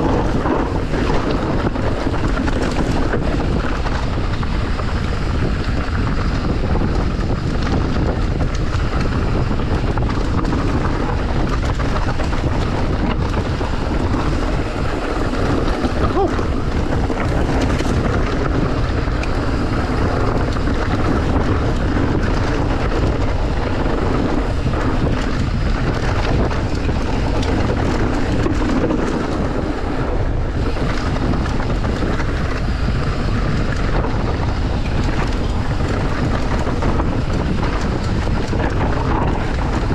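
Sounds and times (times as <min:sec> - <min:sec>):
wind on microphone: 0:00.0 - 0:39.9.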